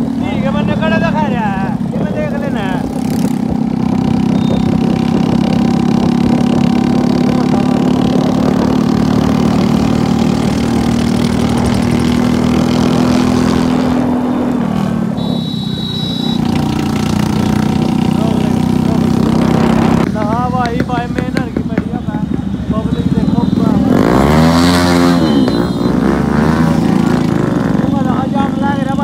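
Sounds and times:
brief high tone: 15.2 - 16.6.

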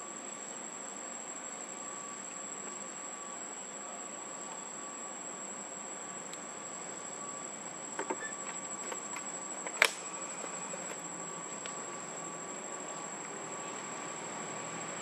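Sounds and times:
insects droning: 0.0 - 15.0
sharp click: 9.7 - 10.0.

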